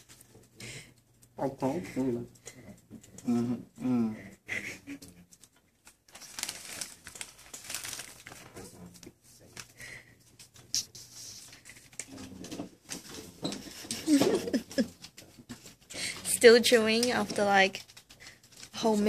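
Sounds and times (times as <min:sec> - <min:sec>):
plastic packet crinkling: 0:05.8 - 0:09.9, 0:16.4 - 0:19.0.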